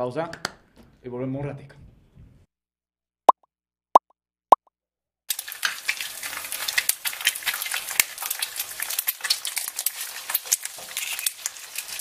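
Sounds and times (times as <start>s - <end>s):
food sizzling as it fries: 5.3s - 12.0s.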